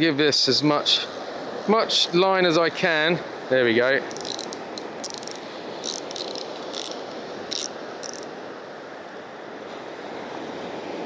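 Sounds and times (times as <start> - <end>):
steady hiss: 0.0 - 9.2
fishing reel ratcheting clicks: 4.1 - 8.3.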